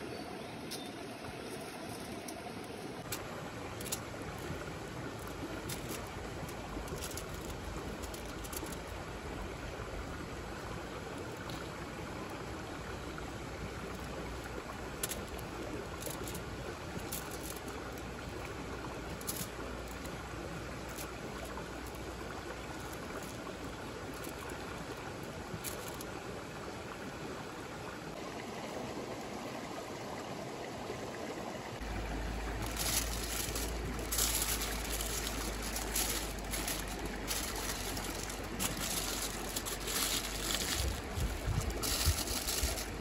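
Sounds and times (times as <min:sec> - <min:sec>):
food sizzling over campfire: 0:31.8 - 0:43.0
fire crackling: 0:31.9 - 0:43.0.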